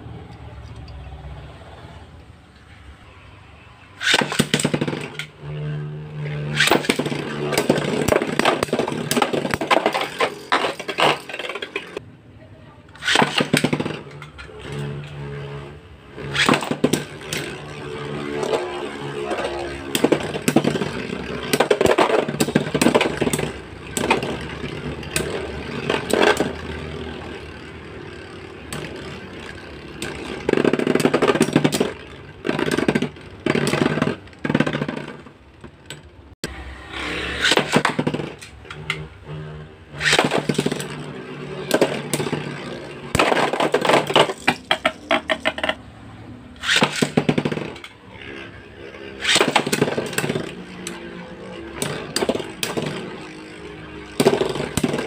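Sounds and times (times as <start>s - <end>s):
spinning tops whirring and scraping: 3.8s - 12.0s, 12.9s - 55.0s
spinning tops clashing: 4.0s - 5.3s, 6.2s - 12.0s, 13.0s - 15.1s, 16.2s - 35.4s, 46.6s - 48.0s, 49.1s - 55.0s.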